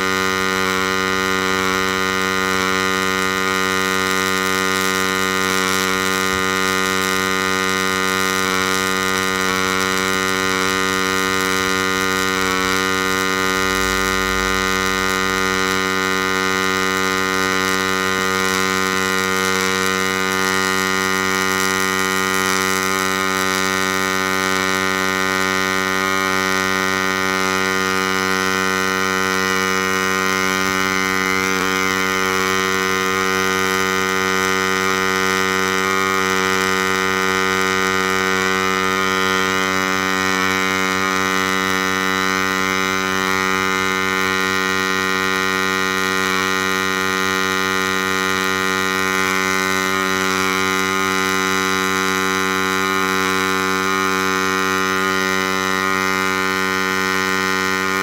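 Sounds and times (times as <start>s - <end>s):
welding arc humming: 0.0s - 58.0s.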